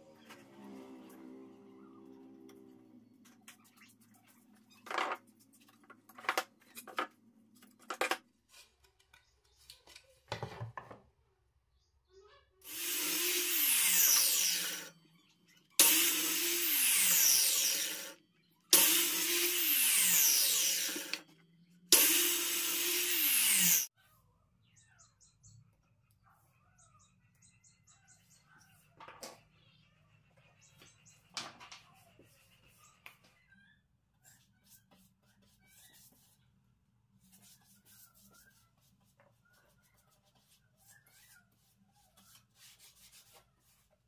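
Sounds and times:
circular saw cutting: 0:12.6 - 0:15.0, 0:15.8 - 0:21.3, 0:21.9 - 0:23.9.

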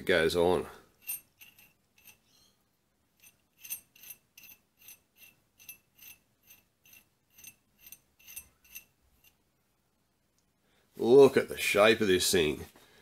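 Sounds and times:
metal nut clicking on thread: 0:01.0 - 0:02.3, 0:03.2 - 0:09.4.

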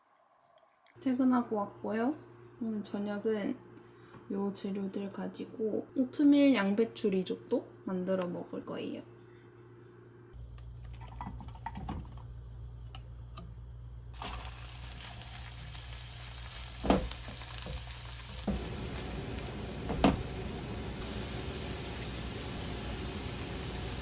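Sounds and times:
food sizzling in a frying pan: 0:14.2 - 0:24.0.

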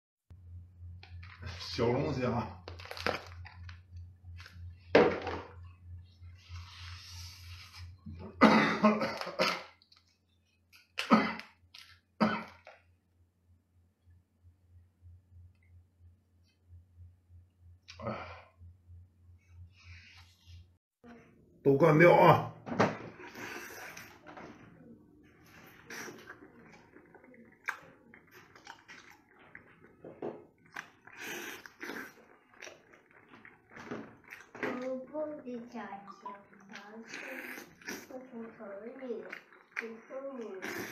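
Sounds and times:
wet chewing and biting: 0:25.6 - 0:34.9, 0:36.0 - 0:38.4, 0:39.0 - 0:40.9
man making eating mouth sounds: 0:25.9 - 0:29.2, 0:30.8 - 0:32.9, 0:36.7 - 0:38.1, 0:40.6 - 0:40.9.

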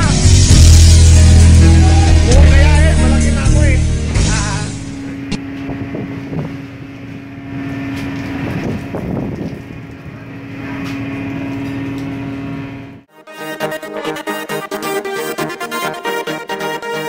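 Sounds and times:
boat engine humming: 0:00.0 - 0:13.1
wind: 0:05.4 - 0:12.9.

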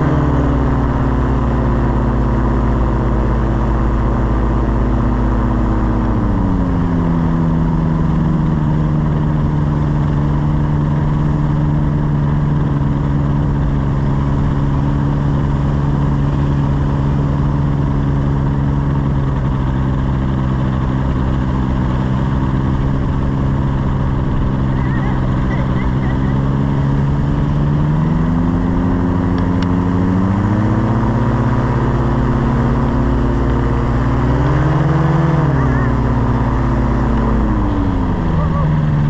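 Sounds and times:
paramotor engine and propeller: 0:00.0 - 0:39.0.

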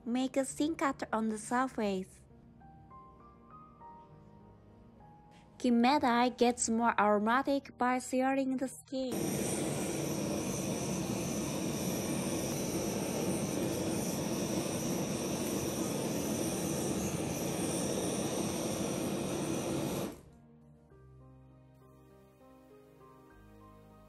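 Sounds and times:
gas torch flame rushing: 0:09.1 - 0:20.2.

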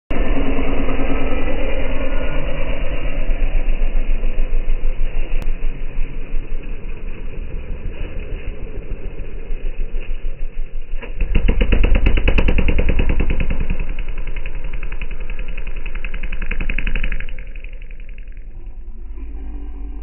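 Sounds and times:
motorcycle engine revving: 0:10.9 - 0:18.8.

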